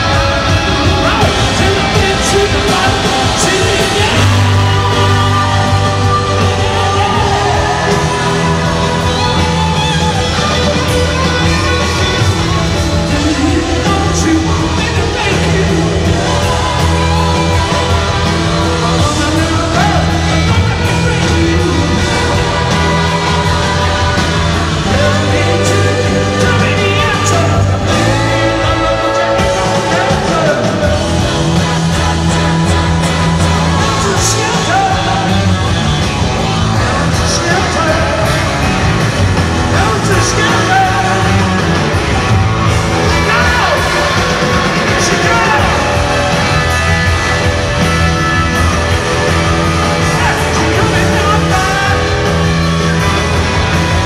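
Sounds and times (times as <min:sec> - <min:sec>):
person singing: 0:00.0 - 0:35.8, 0:48.2 - 0:54.0
rock band playing: 0:00.0 - 0:54.0.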